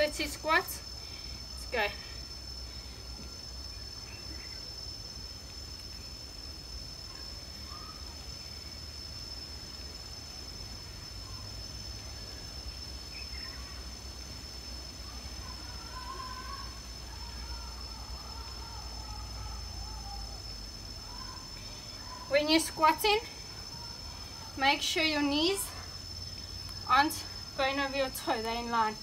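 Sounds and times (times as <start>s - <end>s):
insects droning: 0.0s - 29.0s
faint bird chirps: 1.0s - 4.8s, 7.1s - 8.8s, 11.2s - 14.0s, 15.0s - 24.6s.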